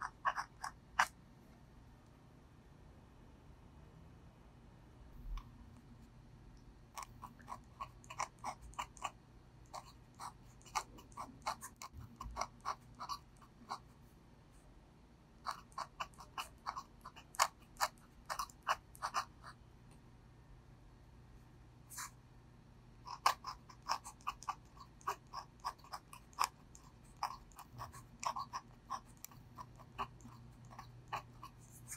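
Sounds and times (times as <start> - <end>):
pen nib scratching on paper: 0.0 - 1.2, 6.9 - 14.2, 15.4 - 19.6, 21.9 - 22.2, 23.0 - 31.9.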